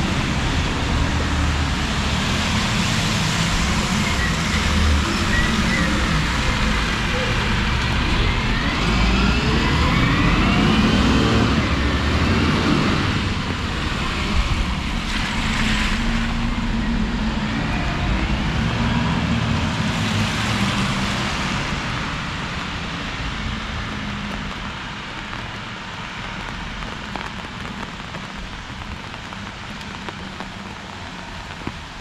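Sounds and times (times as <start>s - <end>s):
rain: 0.0s - 32.0s
traffic on wet street: 0.0s - 32.0s.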